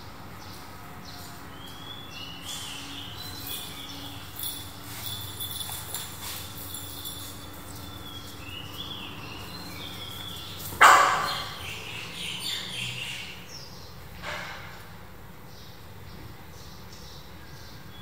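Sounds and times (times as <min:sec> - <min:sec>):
puppy barking: 0:10.7 - 0:11.7.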